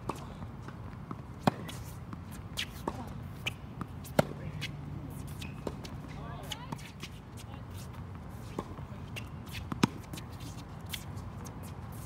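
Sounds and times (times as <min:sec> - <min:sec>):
tennis ball bouncing: 0:00.0 - 0:12.0
footsteps scuffing on court: 0:00.1 - 0:12.0
racquet striking tennis ball: 0:01.4 - 0:06.9.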